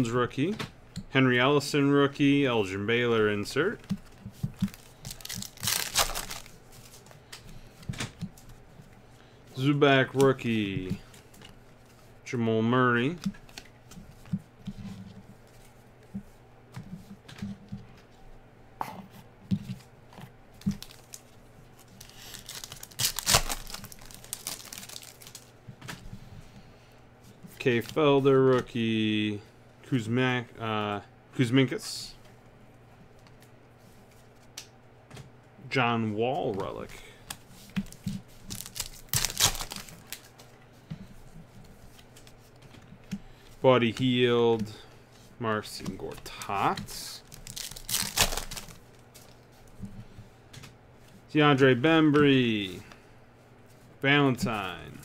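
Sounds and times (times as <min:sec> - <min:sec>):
cards clicking and rustling: 0:03.8 - 0:08.5, 0:20.1 - 0:26.0, 0:36.4 - 0:40.5, 0:45.7 - 0:49.4
foil pack ripped open: 0:05.1 - 0:06.5, 0:22.0 - 0:25.4, 0:38.5 - 0:40.2, 0:47.3 - 0:48.8.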